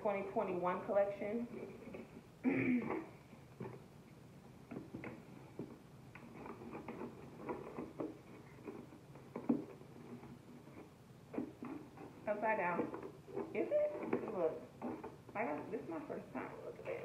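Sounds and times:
packaging rustling and scraping: 0:04.8 - 0:17.0.

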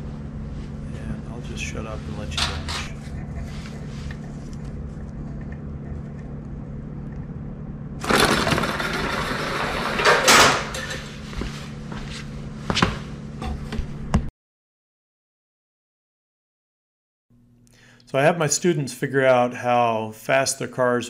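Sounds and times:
steady low hum: 0:00.0 - 0:14.3.

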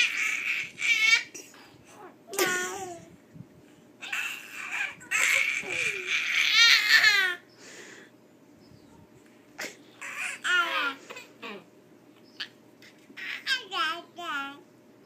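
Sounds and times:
babies babbling: 0:00.0 - 0:03.1, 0:04.0 - 0:07.4, 0:09.6 - 0:11.7, 0:12.4 - 0:14.6.

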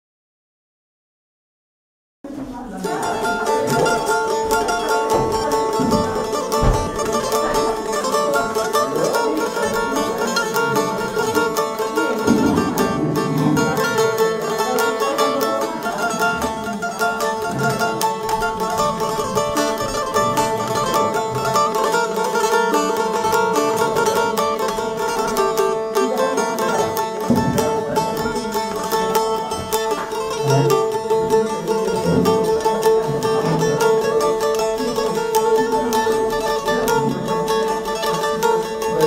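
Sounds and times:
long-necked lute tremolo picking: 0:02.3 - 0:39.0.

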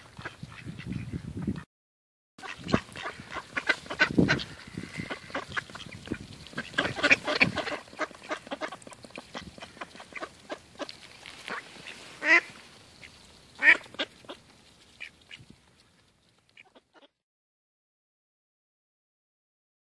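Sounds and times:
ducks quacking: 0:00.0 - 0:01.7, 0:02.4 - 0:15.4, 0:16.5 - 0:17.2.

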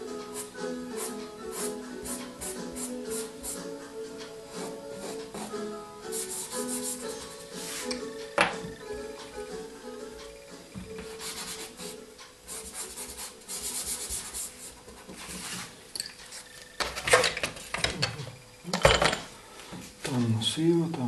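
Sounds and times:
pastel scraping on paper: 0:04.5 - 0:08.0, 0:11.0 - 0:15.8.

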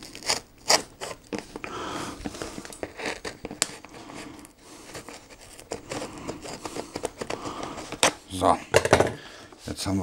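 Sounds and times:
scissors cutting cardboard: 0:00.0 - 0:01.5, 0:02.3 - 0:04.0, 0:04.8 - 0:08.2.

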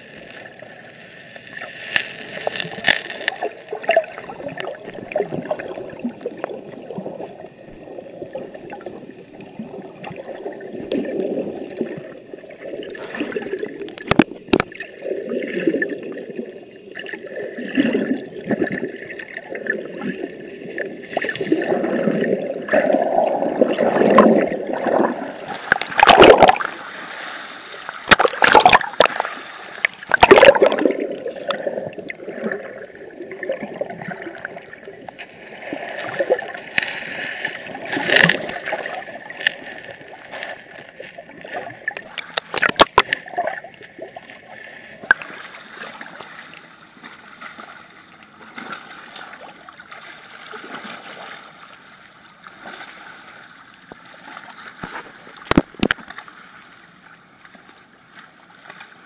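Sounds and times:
muffled underwater sloshing: 0:00.0 - 0:59.0
loud splashes and knocks: 0:25.6 - 0:26.7.

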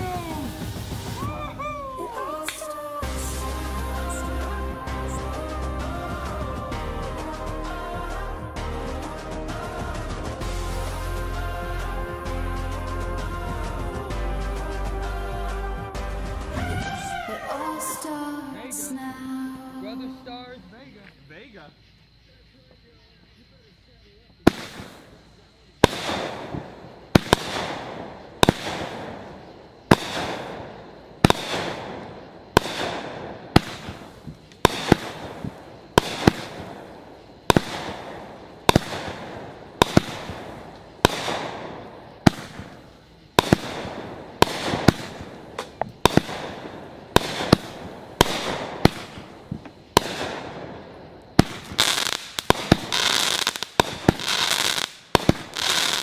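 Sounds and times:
rapid firework popping: 0:00.0 - 0:01.6, 0:24.4 - 0:56.0
firework cake firing bangs: 0:24.4 - 0:56.0.

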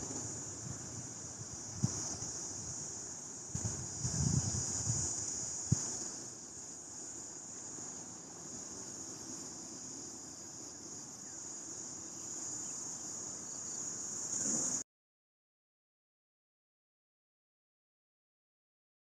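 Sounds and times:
high-pitched insect chorus: 0:00.0 - 0:14.8.

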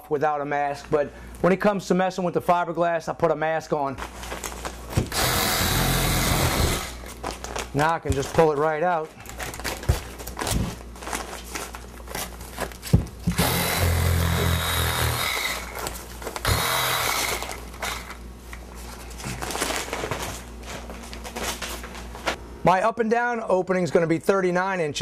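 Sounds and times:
plastic and insulation crinkling: 0:04.0 - 0:05.1, 0:06.9 - 0:13.3, 0:15.5 - 0:16.5, 0:17.3 - 0:22.4
loud ripping: 0:04.0 - 0:18.1.

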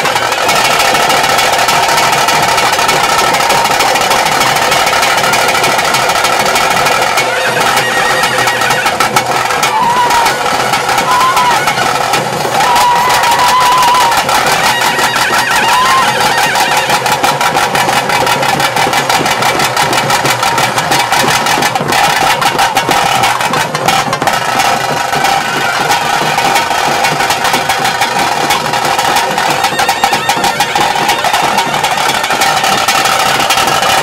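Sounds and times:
fast steady drumming: 0:00.0 - 0:34.0
reed pipe melody: 0:24.6 - 0:34.0.

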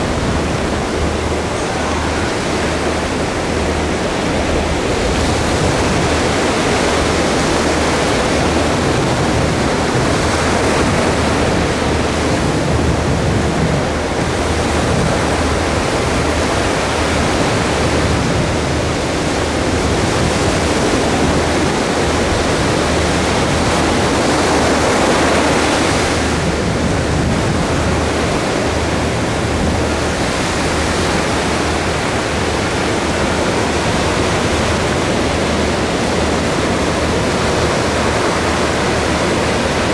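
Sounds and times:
ocean surf breaking: 0:00.0 - 0:39.9.

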